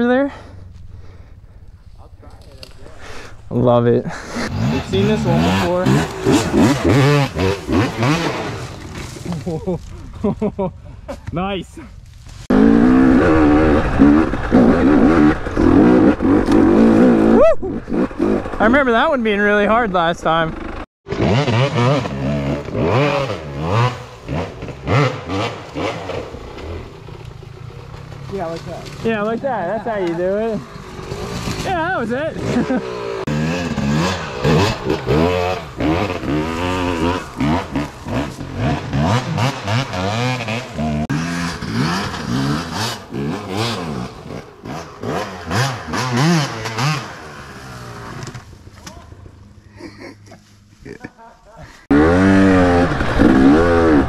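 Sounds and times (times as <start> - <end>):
dirt bike engine revving: 4.1 - 9.2, 12.5 - 48.4, 51.9 - 54.0.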